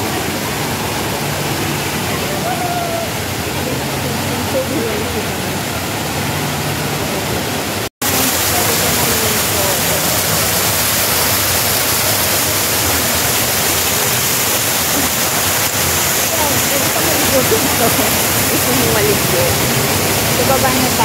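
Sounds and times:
faint crowd chatter: 0.0s - 21.0s
rush of falling water: 0.0s - 21.0s
water splashing into basin: 7.4s - 21.0s.

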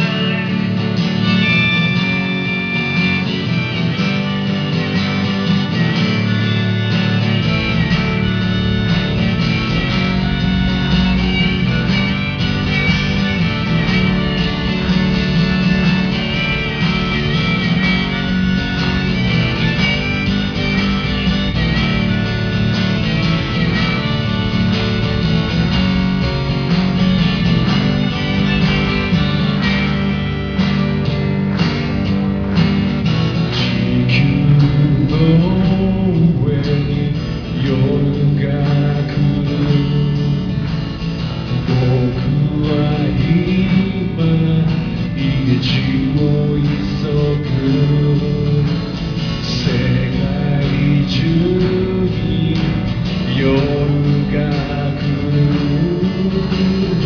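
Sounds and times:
harmonica: 0.0s - 35.0s
strummed guitar: 0.0s - 57.0s
man singing: 33.6s - 40.7s, 41.5s - 57.0s.

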